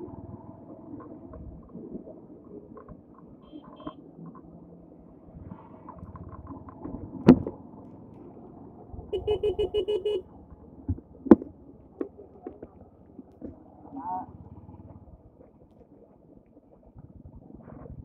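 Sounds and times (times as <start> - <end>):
vehicle horn rapid beeps: 3.4 - 4.0, 9.1 - 10.2
motorcycle engine running: 7.9 - 15.4.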